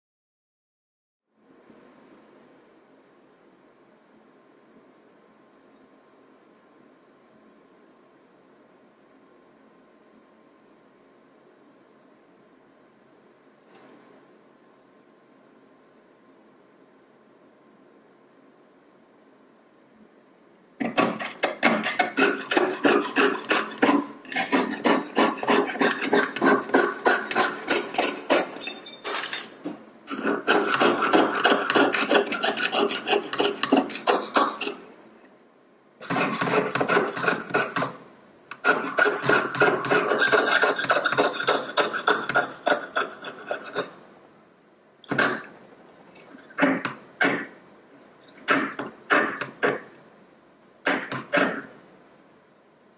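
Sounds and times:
saw cutting sheet metal: 20.8 - 28.6, 30.1 - 34.8, 36.0 - 43.9, 48.4 - 49.9.

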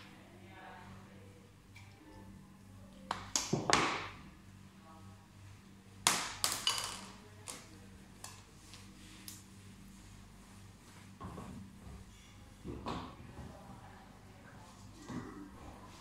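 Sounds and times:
faint low hum: 0.0 - 3.4.

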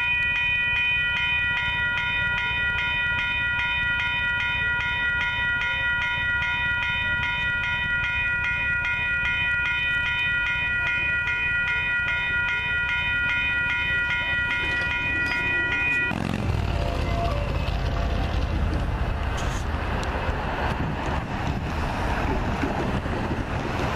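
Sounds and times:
crossing warning bell ringing: 0.0 - 19.0
low rumble: 14.6 - 23.9.

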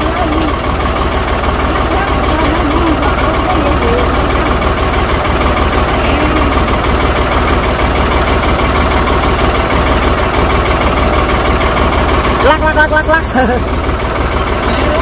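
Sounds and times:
diesel tractor engine idling: 0.0 - 15.0.

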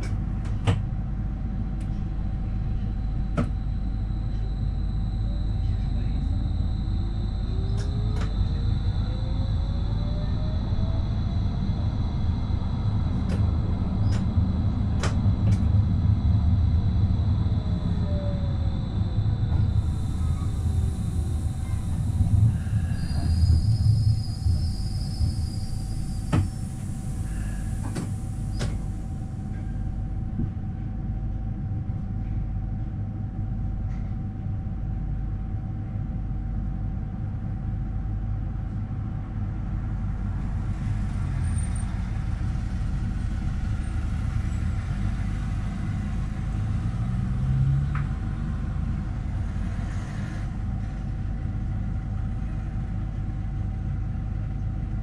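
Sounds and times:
tram equipment low rumble: 0.0 - 55.0
constant mid-pitched hum: 23.5 - 46.6.

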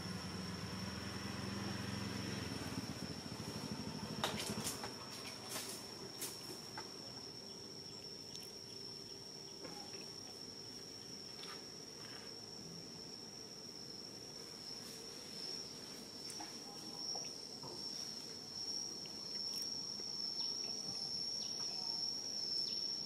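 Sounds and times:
low engine hum: 0.0 - 7.2
high-pitched insect drone: 0.0 - 23.0.

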